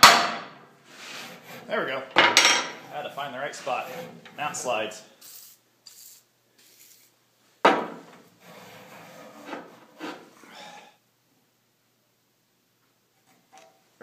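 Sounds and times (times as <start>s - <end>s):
metal bar scraping through bearings: 2.4s - 4.7s.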